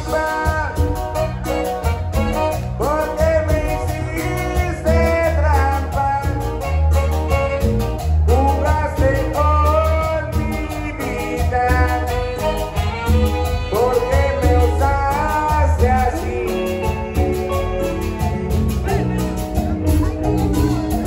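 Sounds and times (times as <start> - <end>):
latin dance band playing: 0.0 - 21.0
person singing: 0.0 - 21.0
saxophones: 0.0 - 21.0
steady bass pulse: 0.0 - 21.0.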